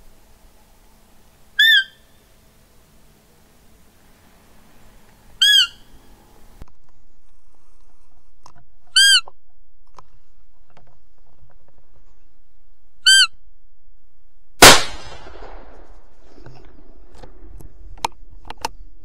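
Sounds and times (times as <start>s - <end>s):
deer call peeps: 1.6s - 2.3s, 5.4s - 6.2s, 8.9s - 9.4s, 13.0s - 13.4s
rifle shot: 14.6s - 16.2s.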